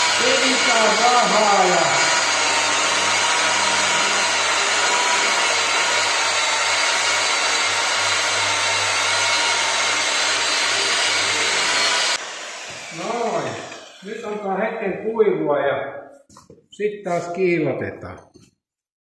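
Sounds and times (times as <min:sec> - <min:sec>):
electric polishing machine running: 0:00.0 - 0:14.6.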